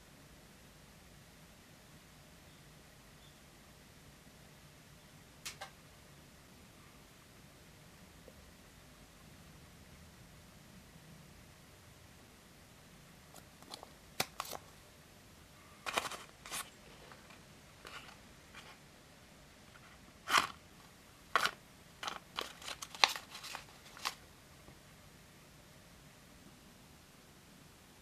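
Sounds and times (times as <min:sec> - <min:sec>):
paper bag crinkling: 0:13.6 - 0:14.7, 0:15.8 - 0:18.8, 0:19.8 - 0:20.6, 0:21.4 - 0:24.2.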